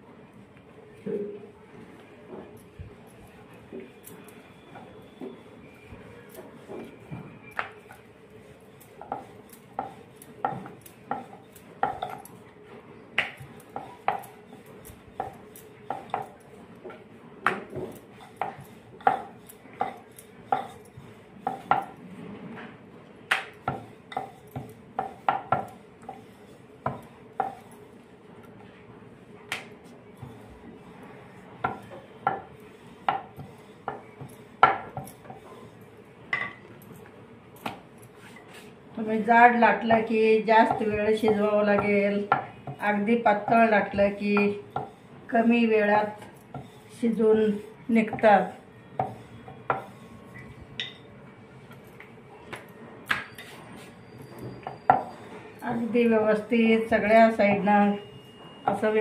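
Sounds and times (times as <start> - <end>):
rolling pin clacking on board: 13.2 - 14.3, 23.3 - 26.2.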